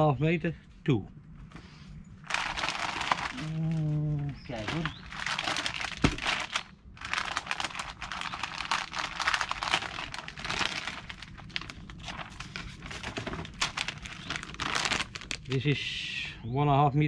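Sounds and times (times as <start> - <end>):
packaging crinkling and rustling: 2.2 - 15.6.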